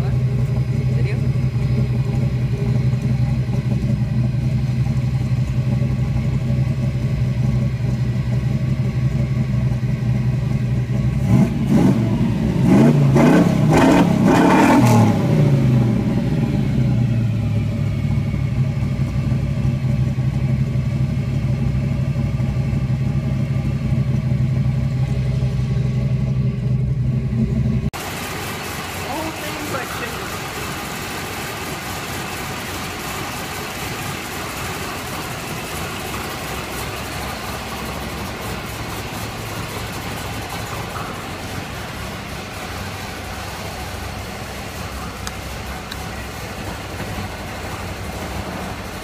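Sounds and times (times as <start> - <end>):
truck engine idling and revving: 0.0 - 49.0.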